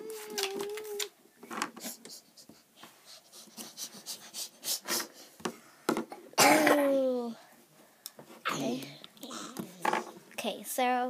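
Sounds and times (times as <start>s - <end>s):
child's drawn-out wordless cry: 0.0s - 1.1s
small toys being handled: 0.1s - 2.0s.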